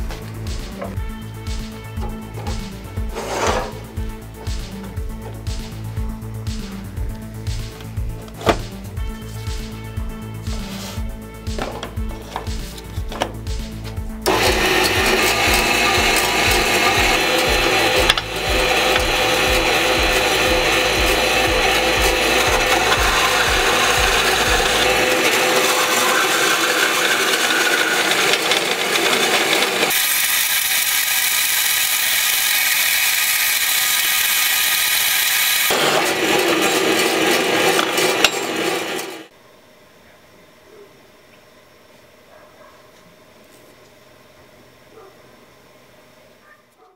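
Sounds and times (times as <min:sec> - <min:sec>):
bandsaw cutting metal: 0:01.6 - 0:05.7, 0:07.6 - 0:39.3.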